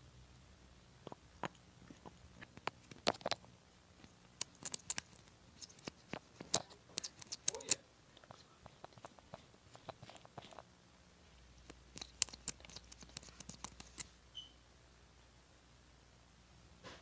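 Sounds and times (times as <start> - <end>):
plastic caps clicking and tapping: 1.0 - 10.7, 11.6 - 14.1.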